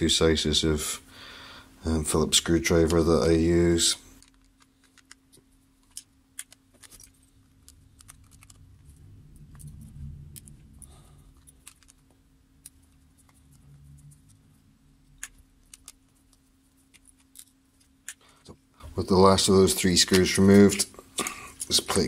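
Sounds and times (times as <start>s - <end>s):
mechanism handled rumble: 4.1s - 20.9s.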